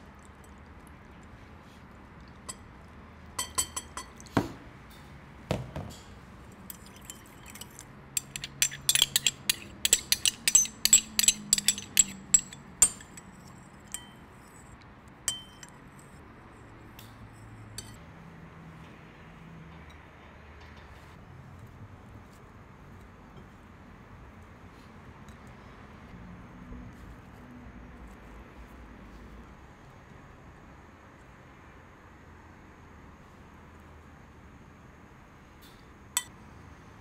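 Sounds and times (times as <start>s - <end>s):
metal spoon clinking against glass: 3.4s - 4.3s, 6.7s - 14.7s, 15.3s - 16.1s, 17.8s - 18.0s.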